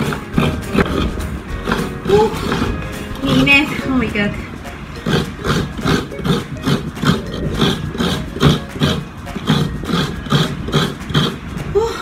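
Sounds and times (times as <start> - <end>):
coconut scraper scraping: 0.0 - 11.9.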